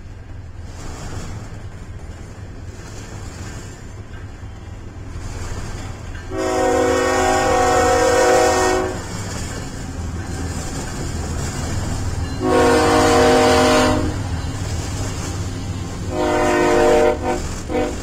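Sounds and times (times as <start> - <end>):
freight train rumble and clatter: 0.0 - 18.0
locomotive air horn blasts: 6.3 - 9.1, 12.4 - 14.2, 15.9 - 18.0.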